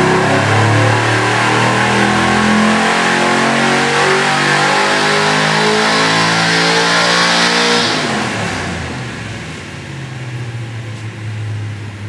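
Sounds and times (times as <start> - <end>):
engine revving at full throttle: 0.0 - 9.4.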